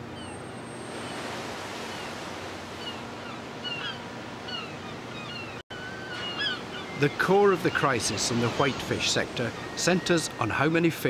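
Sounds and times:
sea waves washing: 0.0s - 5.2s, 6.5s - 11.0s
birds giving short high calls: 2.8s - 7.1s.

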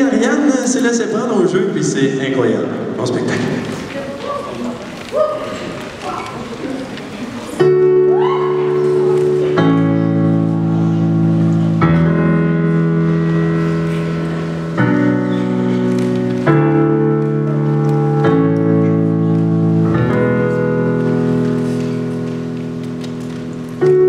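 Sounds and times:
slow piano chords: 5.5s - 24.0s.

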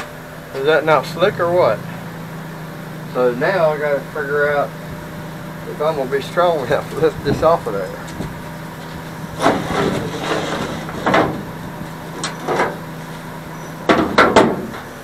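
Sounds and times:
steady low hum: 0.0s - 15.0s
wooden parts and tools clattering: 7.0s - 11.5s, 12.1s - 13.2s.

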